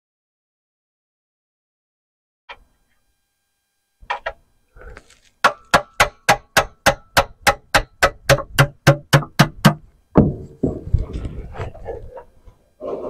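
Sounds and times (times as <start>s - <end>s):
rapid taps on metal: 5.4s - 10.3s.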